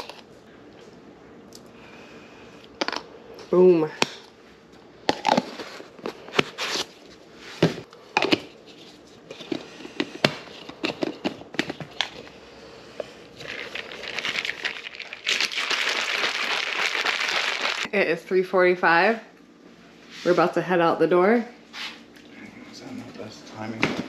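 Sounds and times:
shaker bottle rattling: 13.4 - 17.9.

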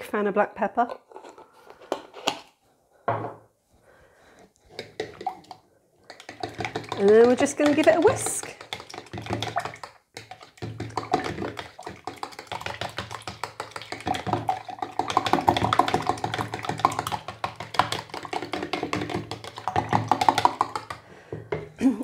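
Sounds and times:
fork whisking in a plastic jug: 4.4 - 21.1.

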